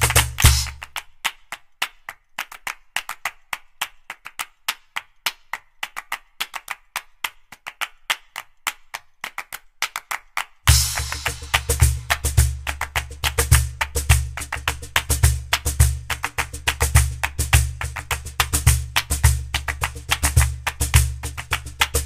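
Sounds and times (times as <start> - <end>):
sharp clap-like percussion hits: 0.0 - 3.3, 9.8 - 22.0.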